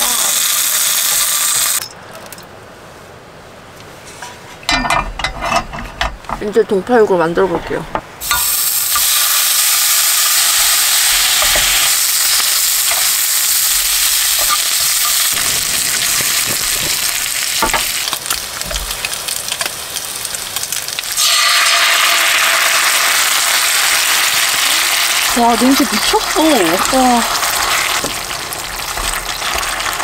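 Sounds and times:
pork sizzling in a pan: 0:00.0 - 0:01.8, 0:08.2 - 0:30.0.

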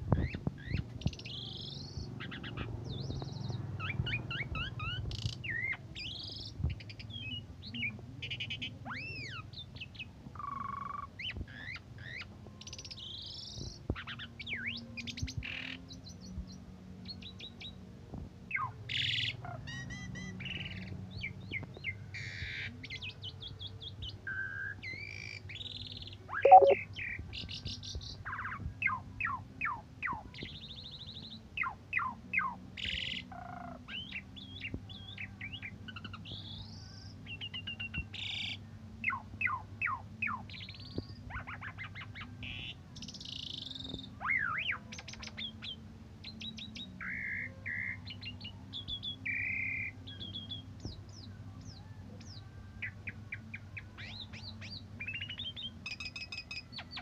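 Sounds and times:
starling singing whistles and trills: 0:26.4 - 0:26.8.

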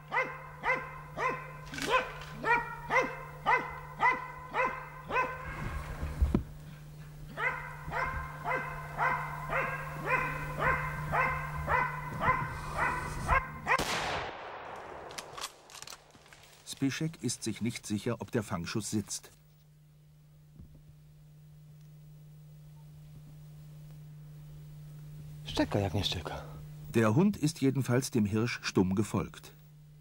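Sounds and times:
dog barking: 0:00.0 - 0:05.6, 0:07.4 - 0:13.8
rifle shot: 0:13.8 - 0:16.4.

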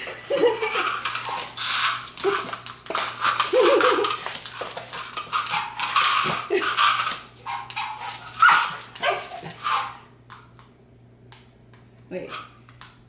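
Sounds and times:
cone and claws clattering on tile: 0:00.0 - 0:10.5
dog crying: 0:07.5 - 0:10.0.

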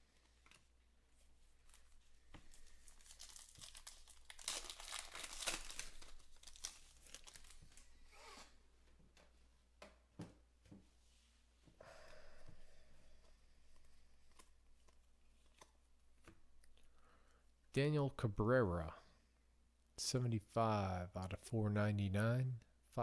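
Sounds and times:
wrapper tearing and crinkling: 0:01.6 - 0:08.3.

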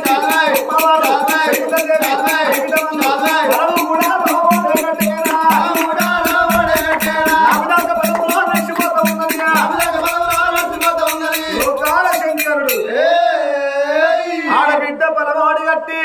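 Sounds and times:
jingling percussion beat: 0:00.0 - 0:13.0.

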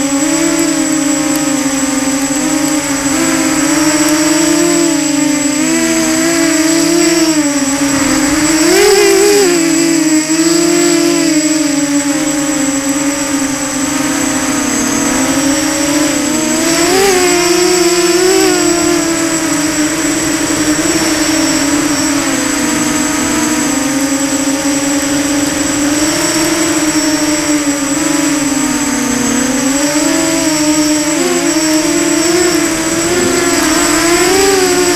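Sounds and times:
model aircraft motor whine: 0:00.0 - 0:34.9.

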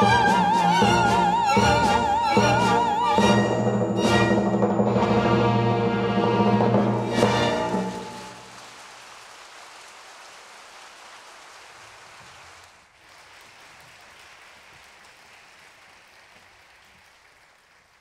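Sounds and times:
audience applauding: 0:07.0 - 0:18.0.

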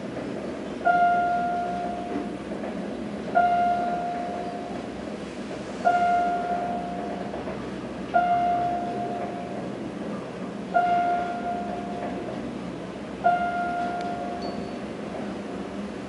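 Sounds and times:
steady background hum: 0:00.0 - 0:16.0
elevator chime: 0:00.8 - 0:02.2, 0:03.4 - 0:04.8, 0:05.8 - 0:07.2, 0:08.2 - 0:09.6, 0:10.8 - 0:12.1, 0:13.2 - 0:14.9.

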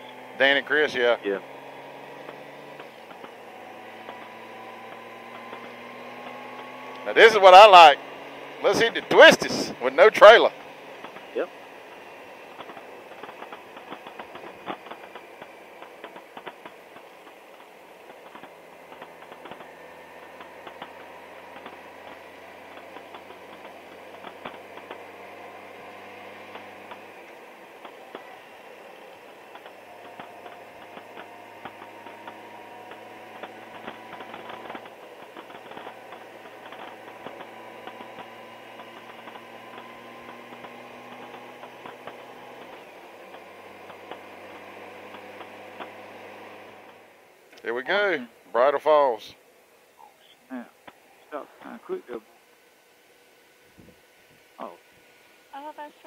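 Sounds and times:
motorcycle engine running: 0:00.0 - 0:56.0
small clicks: 0:29.0 - 0:46.0
wind noise: 0:53.8 - 0:54.0.

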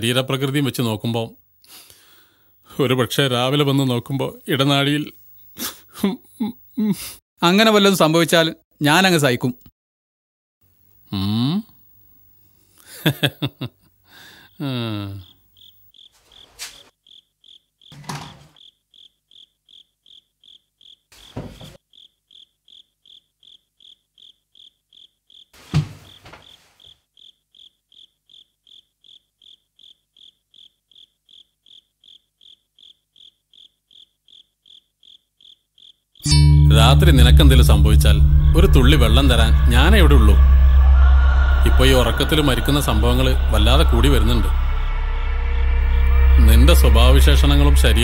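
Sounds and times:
crickets chirping: 0:14.0 - 0:48.0
man's voice: 0:36.6 - 0:44.9, 0:46.1 - 0:48.0.

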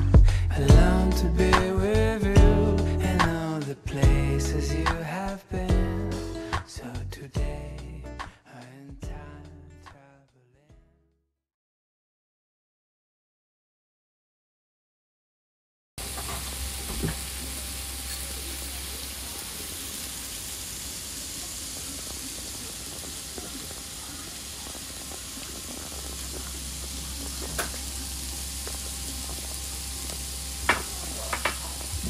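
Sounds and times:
pork belly sizzling on grill: 0:16.0 - 0:32.0.

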